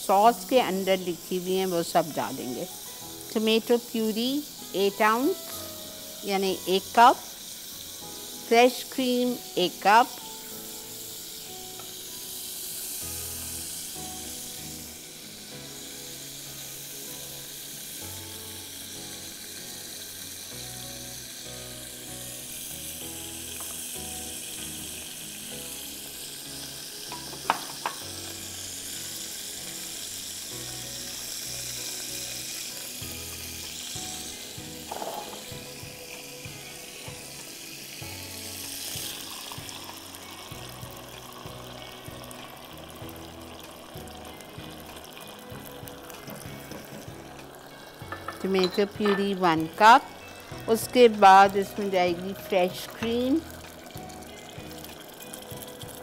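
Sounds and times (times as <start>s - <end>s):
butter sizzling in a saucepan: 0.0s - 56.0s
soft background music: 0.0s - 56.0s
utensil clinks: 48.1s - 49.4s.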